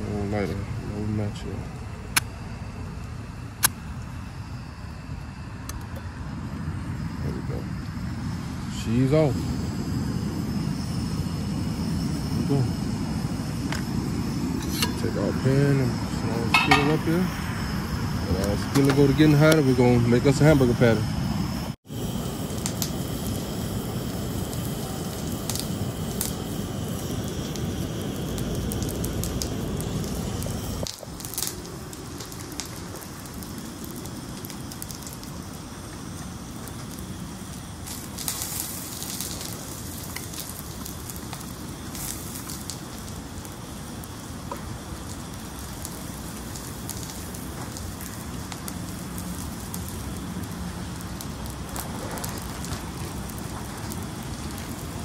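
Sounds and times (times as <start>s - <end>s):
camp stove hissing: 0.0s - 55.0s
light crackles: 22.0s - 55.0s.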